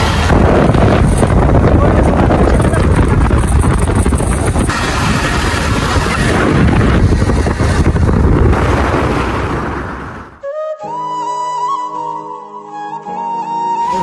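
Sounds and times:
road noise: 0.0s - 10.5s
wind rushing over microphone: 0.0s - 10.5s.

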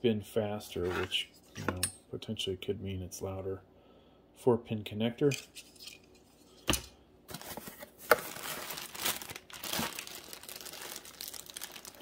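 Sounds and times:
plastic bag crinkling: 7.3s - 12.0s.

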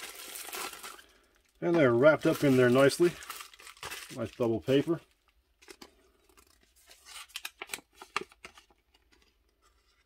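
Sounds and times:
bubble wrap crackling: 0.0s - 5.2s.

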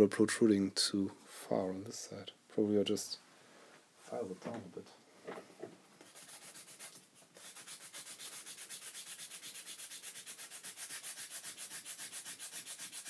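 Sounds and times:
hand file rasping on circuit board: 6.1s - 13.0s.

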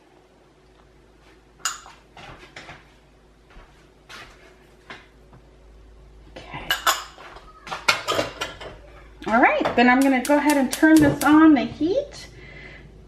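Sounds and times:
glass bowls clinking on pot: 1.6s - 2.0s, 6.7s - 7.3s, 7.9s - 8.8s.

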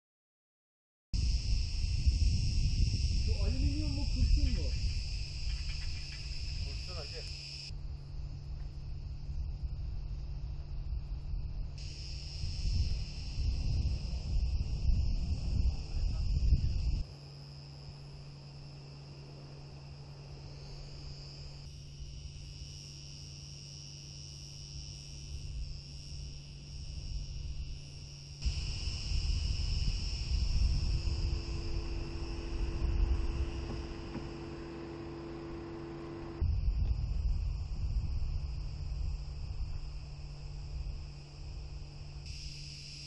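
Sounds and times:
wind rumble on microphone: 1.2s - 19.2s, 25.2s - 42.4s
cicadas buzzing: 1.2s - 43.0s.

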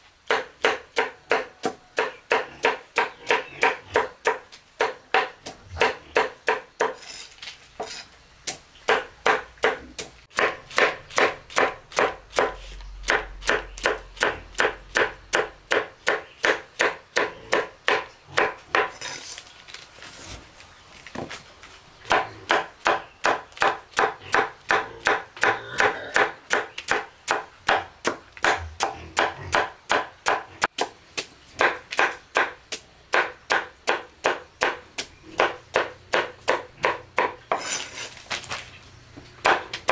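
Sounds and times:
blade chopping on wooden board: 7.8s - 19.0s, 22.1s - 34.8s, 35.4s - 38.1s, 39.4s - 39.9s.

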